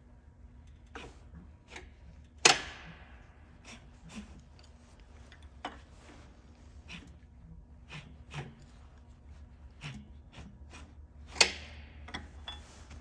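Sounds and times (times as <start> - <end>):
metallic clicks from engine: 0.5 - 3.8, 11.2 - 13.0.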